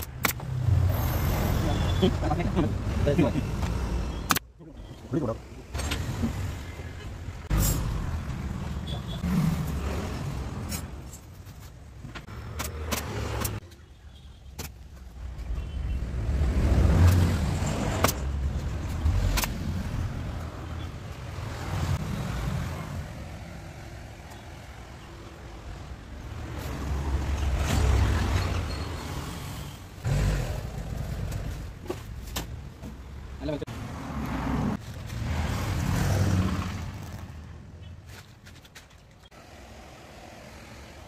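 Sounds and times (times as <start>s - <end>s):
passing road traffic rumble: 33.5s - 37.9s.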